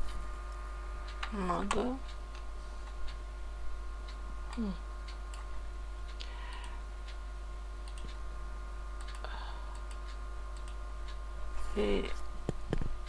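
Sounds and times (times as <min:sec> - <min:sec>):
steady low hum: 0:00.0 - 0:13.0
keyboard and mouse clicks: 0:07.8 - 0:08.2, 0:09.0 - 0:10.8.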